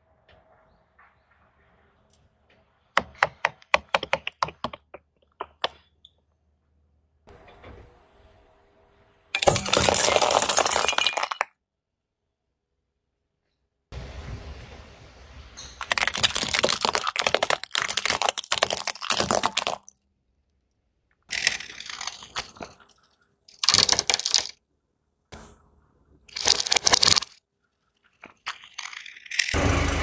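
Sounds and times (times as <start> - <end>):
tyre crunching plastic toys: 9.4 - 11.3, 15.8 - 19.9, 21.3 - 24.6, 26.3 - 27.4, 28.0 - 29.6
low rumble: 14.0 - 15.8.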